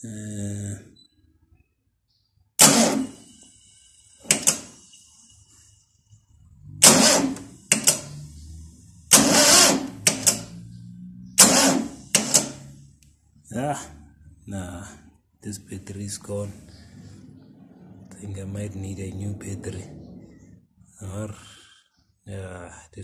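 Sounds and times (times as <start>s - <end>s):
engine starter jolting: 2.6s - 5.0s, 6.8s - 8.1s, 9.1s - 10.6s, 11.4s - 12.6s
low hum: 15.8s - 21.3s.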